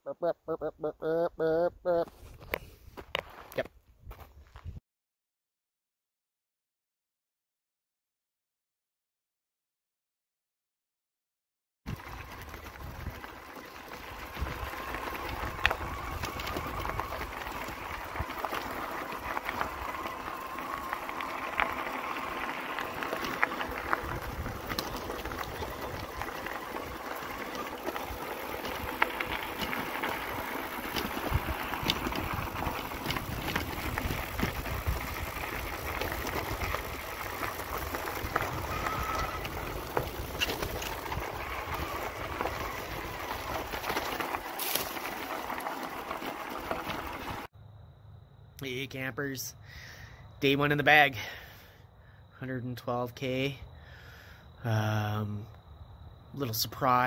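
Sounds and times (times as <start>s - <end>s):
tyre and ground noise: 0.1s - 4.8s, 11.9s - 47.5s
bike and bags rattling: 11.9s - 47.5s
wind rumbling on microphone: 11.9s - 47.5s
electric bike motor whirring: 12.0s - 47.5s.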